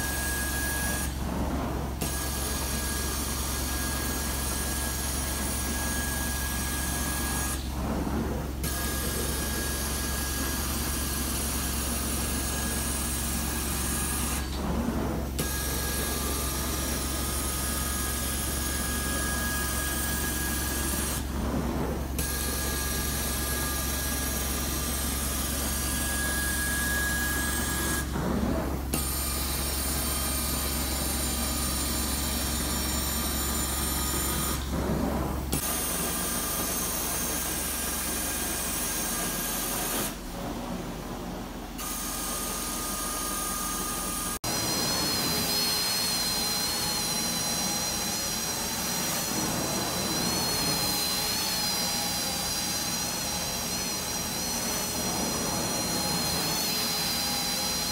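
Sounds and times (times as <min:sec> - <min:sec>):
carpet cleaner vacuum hiss: 0:41.8 - 0:57.9.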